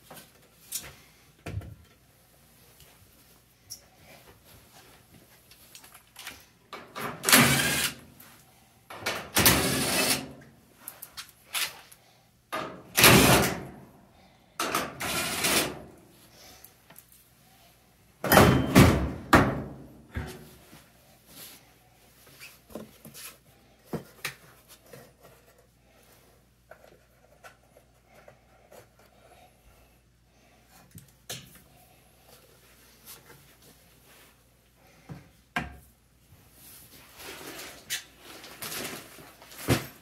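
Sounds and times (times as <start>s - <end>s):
cordless drill bursts: 7.3s - 8.0s, 9.4s - 10.3s.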